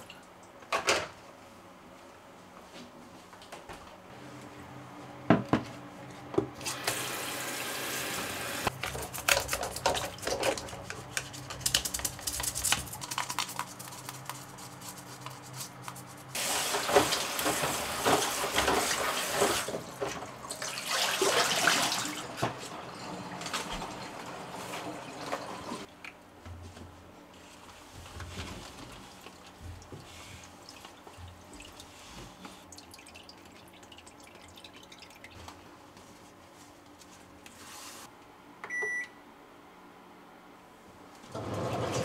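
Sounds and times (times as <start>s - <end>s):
tap water running: 6.6s - 8.7s, 16.4s - 25.9s, 29.2s - 35.6s, 41.3s - 42.0s
scrubbing plastic filter: 8.7s - 22.2s.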